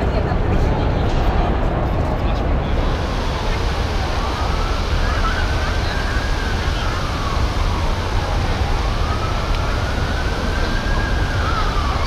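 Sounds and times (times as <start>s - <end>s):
distant siren wailing: 2.8s - 12.0s.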